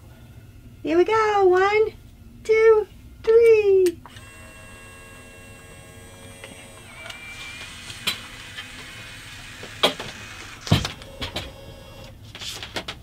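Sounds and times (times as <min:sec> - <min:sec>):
camera motor whirring: 0:04.1 - 0:12.1
sharp clicks and knocks: 0:09.6 - 0:11.6.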